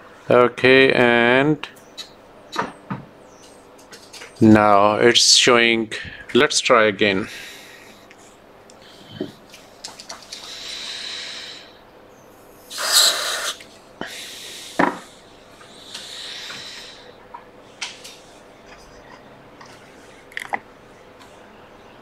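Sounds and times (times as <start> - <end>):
aerosol spray hissing: 12.7 - 13.6.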